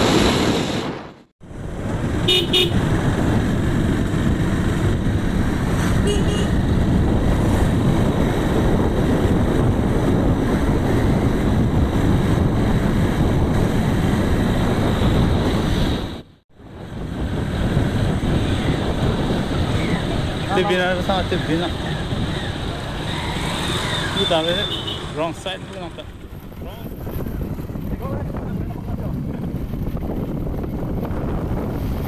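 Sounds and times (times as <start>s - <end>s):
wind noise: 0.0s - 32.0s
motorcycle engine riding: 1.4s - 32.0s
vehicle horn toots: 2.2s - 2.9s, 6.0s - 6.6s, 24.2s - 25.2s.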